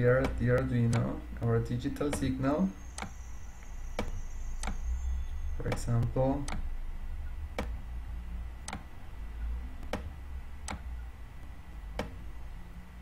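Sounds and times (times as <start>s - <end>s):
steady low hum: 0.0s - 13.0s
input device clicks: 0.2s - 2.4s, 3.0s - 3.2s, 4.0s - 4.8s, 5.6s - 6.7s, 7.5s - 7.8s, 8.6s - 8.9s, 9.8s - 10.9s.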